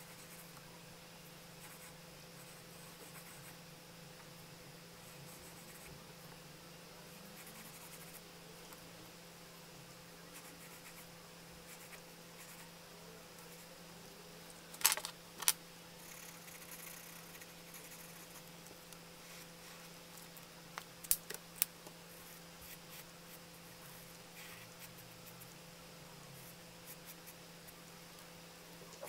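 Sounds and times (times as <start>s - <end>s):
steady low hum: 0.0s - 29.0s
pencil scratching on paper: 1.6s - 3.6s, 16.0s - 18.5s.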